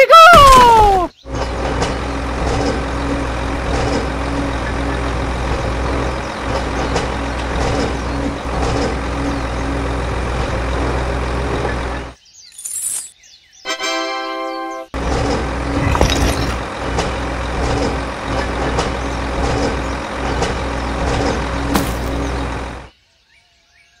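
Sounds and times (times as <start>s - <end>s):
vehicle engine running: 1.1s - 12.2s, 15.0s - 23.0s.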